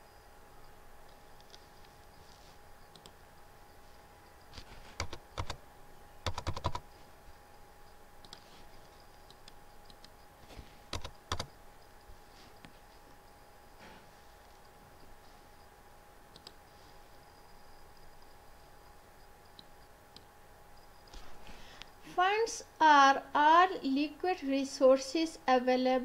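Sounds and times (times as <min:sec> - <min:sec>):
faint steady hum: 0:00.0 - 0:26.0
keyboard keys clicking: 0:05.0 - 0:05.6, 0:06.2 - 0:06.8, 0:10.9 - 0:11.5
mouse clicks: 0:16.3 - 0:16.6.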